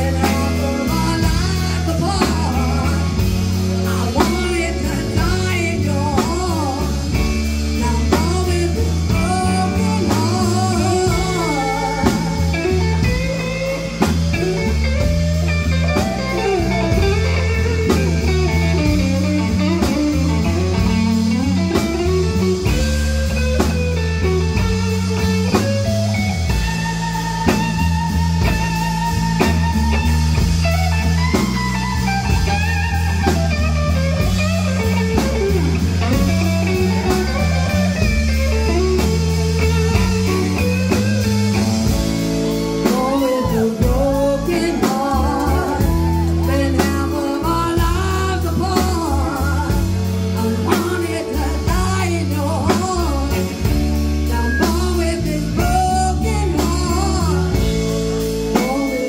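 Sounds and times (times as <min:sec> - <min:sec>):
woman singing: 0:00.0 - 0:14.2, 0:42.7 - 0:59.0
drum kit: 0:00.0 - 0:59.0
electric bass: 0:00.0 - 0:59.0
electric guitar: 0:00.0 - 0:59.0.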